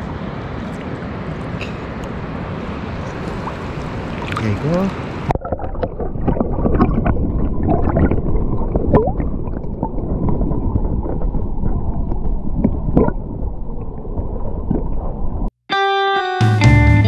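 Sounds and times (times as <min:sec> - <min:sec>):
river water rushing: 0:00.0 - 0:05.3
small splashes: 0:03.1 - 0:09.6.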